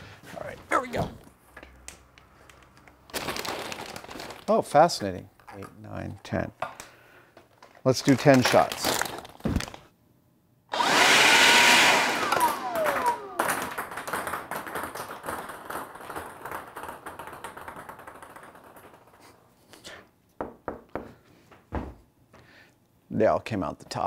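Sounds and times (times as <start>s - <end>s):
blower rushing burst: 10.7s - 13.8s
motor winding down whine: 10.7s - 13.8s
ping pong balls bouncing: 12.4s - 19.3s.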